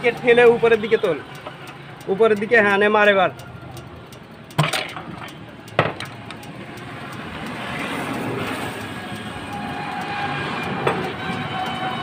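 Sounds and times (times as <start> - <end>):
passing vehicle rumble: 0.0 - 12.0
sharp metal knock: 4.5 - 5.1.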